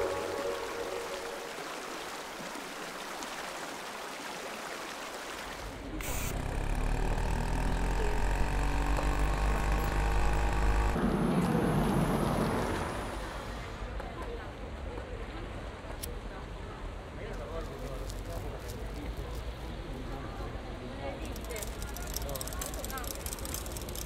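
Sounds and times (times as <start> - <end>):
engine rumbling: 6.0 - 13.8.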